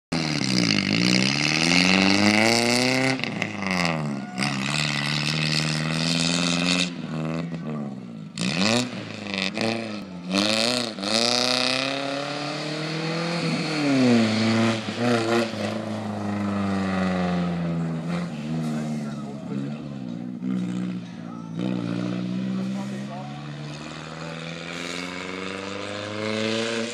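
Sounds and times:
truck engine revving: 0.1 - 26.9.

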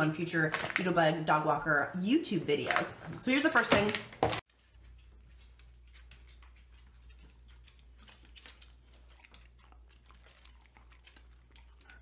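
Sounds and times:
dog crunching biscuit: 5.8 - 12.0.

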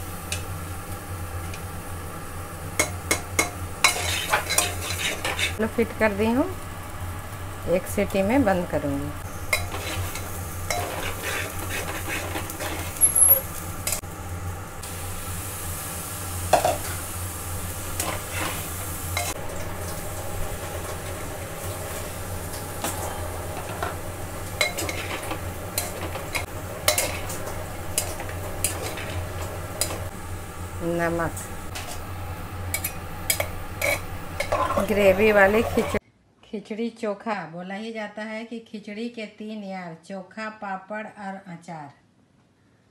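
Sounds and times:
light sizzling: 0.0 - 36.0
steady low hum: 0.0 - 36.0
spatula scraping food in a pot: 3.8 - 5.6, 9.5 - 13.4, 18.0 - 19.4, 24.6 - 27.4, 32.7 - 36.0.

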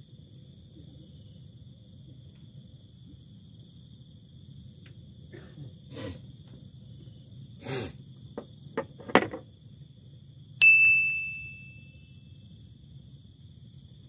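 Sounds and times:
metallic ding ringing: 10.6 - 12.2.

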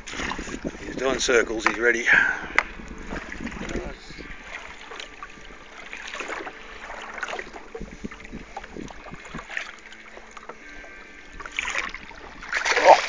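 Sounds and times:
water lapping against boat hull: 0.0 - 13.0.

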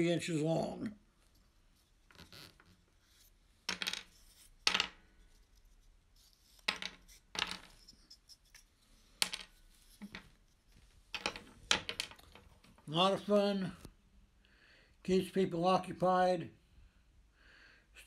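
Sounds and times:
wooden puzzle pieces clacking: 2.0 - 13.3.

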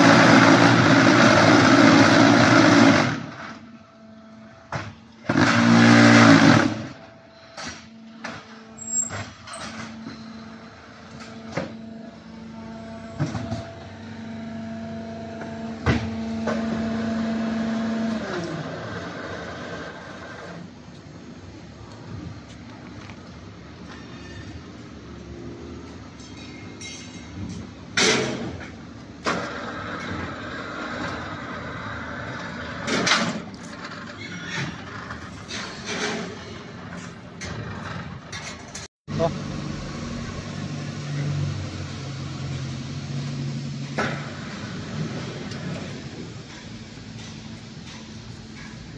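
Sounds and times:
block machine running: 0.0 - 3.7, 4.6 - 7.2
loud machine buzzing: 0.0 - 8.8, 9.8 - 20.7, 39.1 - 45.6
low hydraulic hum: 0.0 - 48.9
metal clanks of mould and pallet: 26.2 - 30.2, 32.7 - 38.9.

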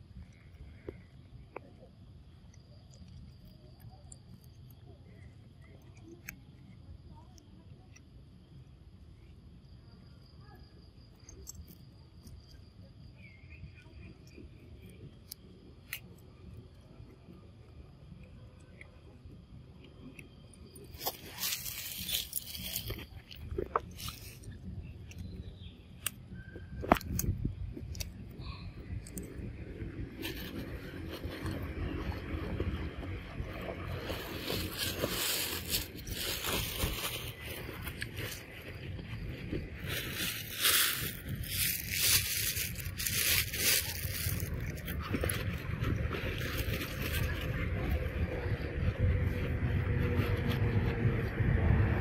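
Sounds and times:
insects trilling: 0.0 - 45.1
dry leaves rustling and crackling: 20.9 - 24.5, 30.2 - 50.9
low rumble: 21.5 - 52.0.

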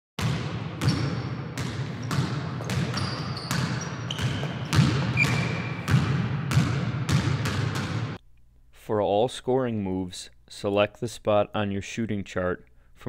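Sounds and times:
basketball bouncing: 0.2 - 8.2
short high squeaks: 2.0 - 5.7.

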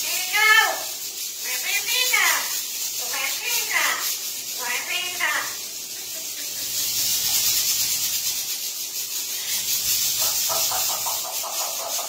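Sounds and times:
parrot rapid chattering: 0.1 - 12.0
parrot breathy hiss: 5.6 - 12.0.

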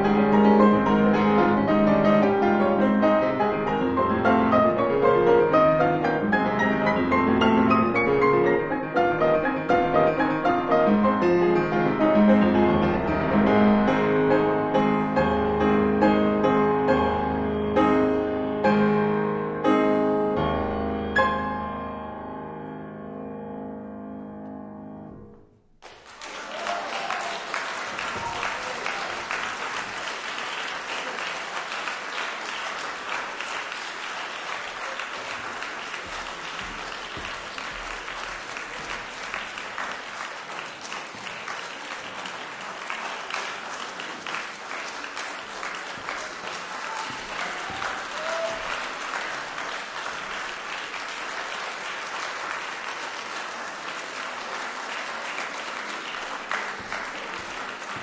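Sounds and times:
grand piano notes: 0.0 - 25.8
audience applauding: 25.8 - 58.0.

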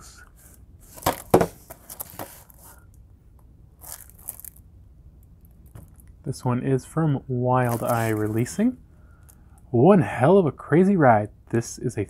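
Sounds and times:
plastic wrap crinkling: 3.8 - 4.6, 7.6 - 8.5.

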